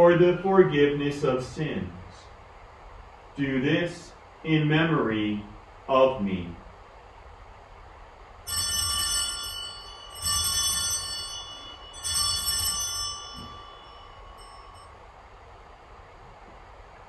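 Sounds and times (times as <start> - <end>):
altar bells ringing: 8.5 - 15.2.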